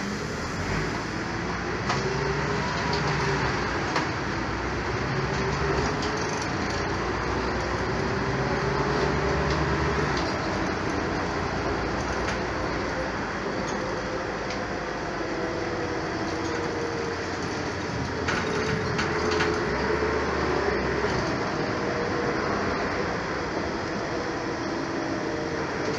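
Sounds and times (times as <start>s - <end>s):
bus engine and road rumble: 0.0s - 25.9s.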